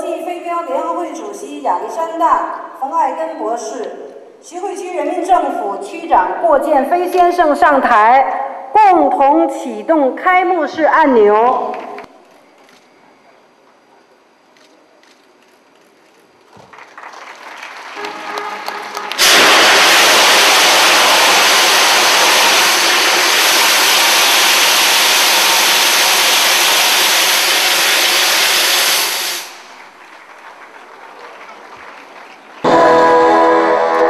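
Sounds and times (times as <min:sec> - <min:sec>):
applause: 0:16.5 - 0:22.0, 0:29.6 - 0:33.1
brass band music: 0:18.0 - 0:19.7, 0:32.6 - 0:34.0
confetti launchers hissing: 0:18.8 - 0:29.9.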